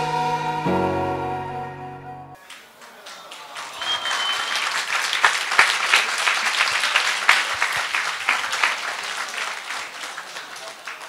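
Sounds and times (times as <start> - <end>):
song playing: 0.0 - 2.4
crowd clapping: 2.4 - 11.0
short high whistle: 3.8 - 4.7.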